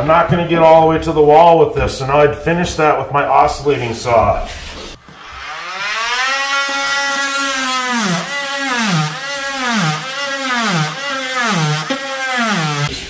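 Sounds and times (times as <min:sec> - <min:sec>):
circular saw cutting flooring: 0:04.3 - 0:13.0.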